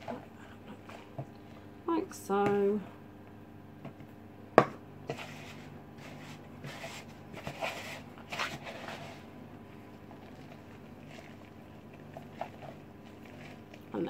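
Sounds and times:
dough squishing and rubbing: 5.1s - 14.0s.

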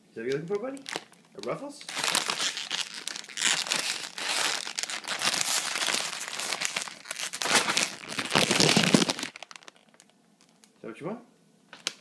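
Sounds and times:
chip bag crinkling: 0.8s - 10.7s.

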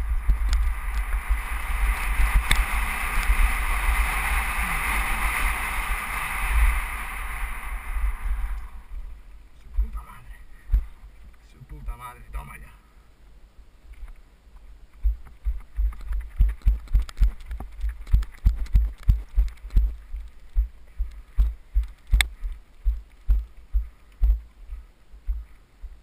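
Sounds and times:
sharp crack: 0.0s - 8.8s
wind buffeting microphone: 0.0s - 10.0s.

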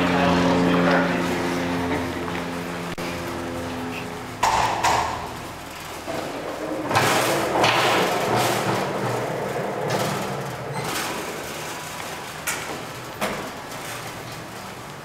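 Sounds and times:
cart rolling and rattling: 0.0s - 15.0s
knocks: 4.4s - 5.4s.

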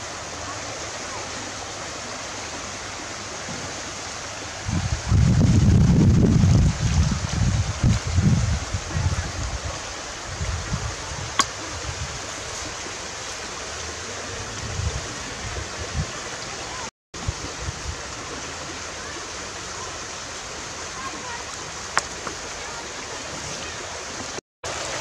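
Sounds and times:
flowing water rushing: 0.0s - 25.0s
wind rumble on microphone: 4.5s - 12.8s, 14.3s - 16.6s, 17.2s - 18.4s.

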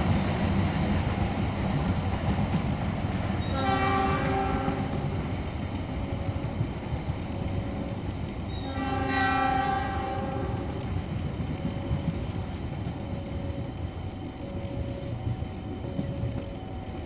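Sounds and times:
low rumble of rail traffic: 0.0s - 17.0s
train horn blast: 3.4s - 5.2s, 8.5s - 10.8s.

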